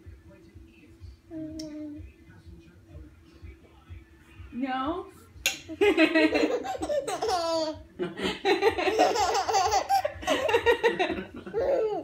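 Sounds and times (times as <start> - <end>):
baby laughing: 6.2 - 7.8, 8.6 - 12.0.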